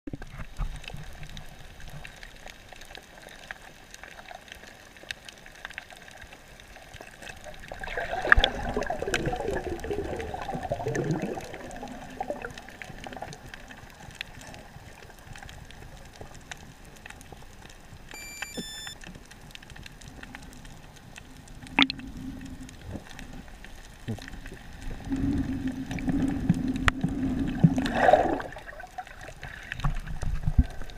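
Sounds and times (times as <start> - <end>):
air bubbles gurgling: 7.1 - 15.8, 21.6 - 30.9.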